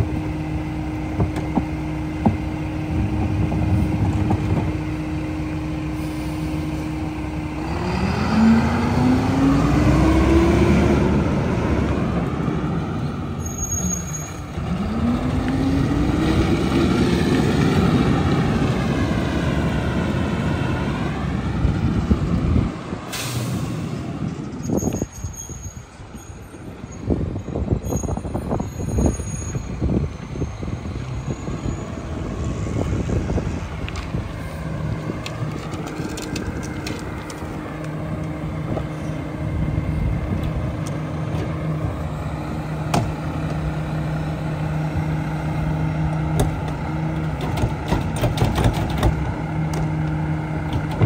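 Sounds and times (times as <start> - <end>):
garbage truck diesel engine: 0.0 - 51.0
air-brake hiss: 23.1 - 23.9
engine knocks: 46.1 - 49.9.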